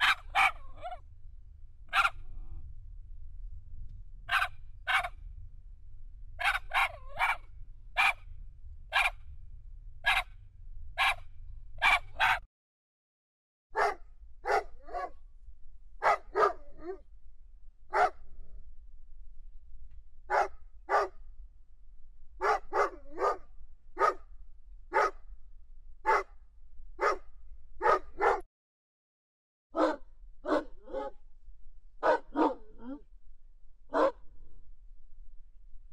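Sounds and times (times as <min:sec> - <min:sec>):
dogs barking: 0:00.0 - 0:01.0, 0:01.9 - 0:02.2, 0:04.3 - 0:05.2, 0:06.4 - 0:08.2, 0:08.9 - 0:09.2, 0:10.0 - 0:10.3, 0:11.0 - 0:11.2, 0:11.8 - 0:12.4, 0:13.8 - 0:15.2, 0:16.0 - 0:17.0, 0:17.9 - 0:18.2, 0:20.3 - 0:21.2, 0:22.4 - 0:23.4, 0:24.0 - 0:24.2, 0:24.9 - 0:25.2, 0:26.1 - 0:26.3, 0:27.0 - 0:27.2, 0:27.8 - 0:28.4, 0:29.8 - 0:31.2, 0:32.0 - 0:33.0, 0:33.9 - 0:34.2
faint low hum: 0:00.0 - 0:12.4, 0:13.8 - 0:28.4, 0:30.0 - 0:35.9.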